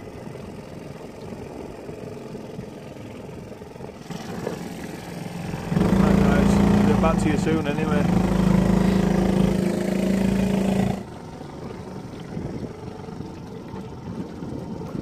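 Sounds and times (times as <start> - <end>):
outboard motor running: 0.0 - 15.0
water: 0.0 - 15.0
wind noise: 11.6 - 15.0.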